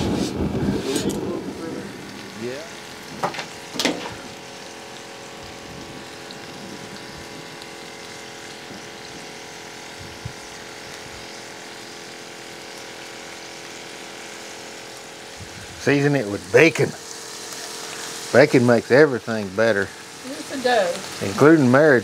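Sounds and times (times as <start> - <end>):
meat sizzling on a griddle: 0.0 - 22.0.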